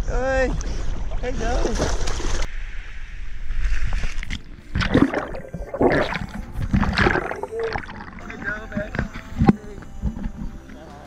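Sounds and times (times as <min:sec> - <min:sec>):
seawater splashing: 0:03.8 - 0:11.0
underwater gurgling: 0:04.2 - 0:10.7.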